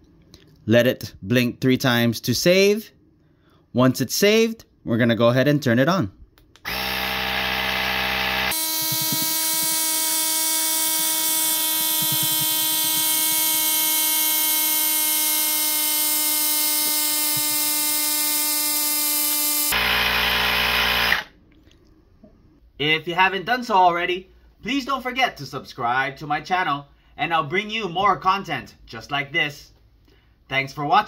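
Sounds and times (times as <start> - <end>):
electric air compressor buzzing: 6.7 - 21.3.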